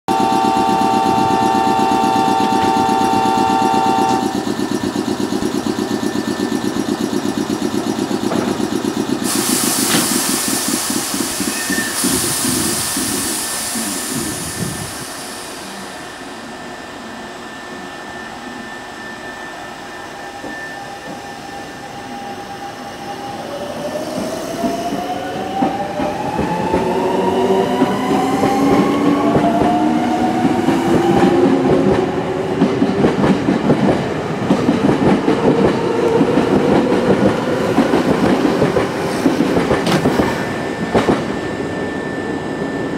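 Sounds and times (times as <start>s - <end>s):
train motors whining: 0.1s - 19.3s
air hiss: 9.2s - 15.9s.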